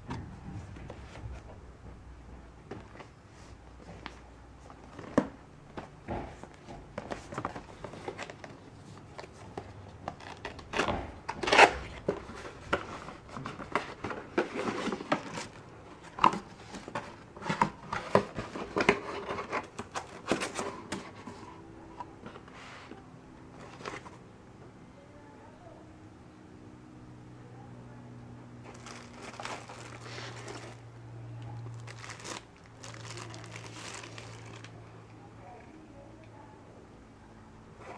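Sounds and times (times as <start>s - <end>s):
cardboard scraping and rustling: 6.4s - 21.6s, 22.2s - 24.2s, 28.6s - 30.8s, 31.7s - 34.7s
plastic wrap rustling: 28.6s - 34.8s.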